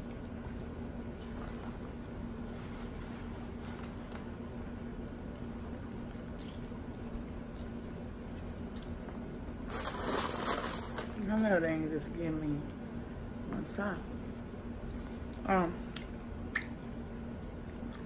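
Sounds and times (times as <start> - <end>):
steady low hum: 0.0 - 18.0
food rustling and handling: 9.6 - 11.5.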